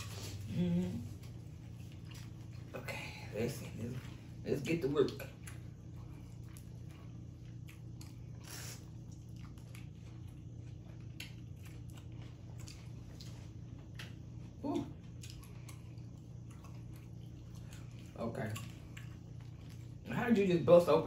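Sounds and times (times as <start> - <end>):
steady low hum: 0.0 - 21.0
murmured voice: 0.4 - 1.1.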